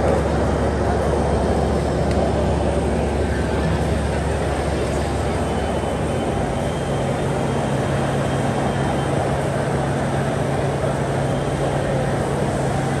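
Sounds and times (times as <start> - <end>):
exhibition hall machinery roar: 0.0 - 13.0.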